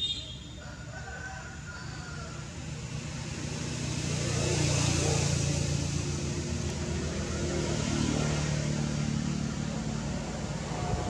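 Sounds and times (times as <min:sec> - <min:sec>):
vehicle engine running: 0:02.6 - 0:11.0.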